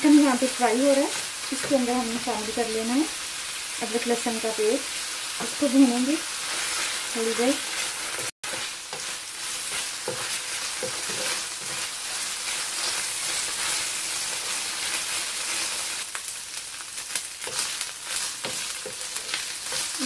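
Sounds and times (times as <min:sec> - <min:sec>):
chicken sizzling in oil: 0:00.0 - 0:20.0
wooden spatula scraping pan: 0:06.4 - 0:15.7.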